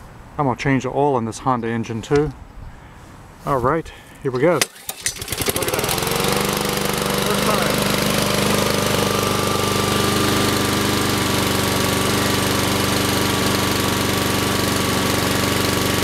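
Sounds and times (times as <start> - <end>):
lawn mower engine running: 4.4 - 16.0.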